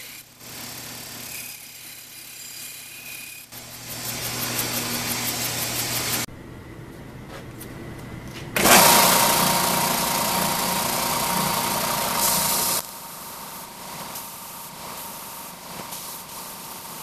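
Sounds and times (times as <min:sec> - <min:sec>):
bandsaw humming: 0:00.0 - 0:06.3, 0:08.6 - 0:17.0
belt sander whining: 0:03.6 - 0:06.3, 0:08.6 - 0:12.8.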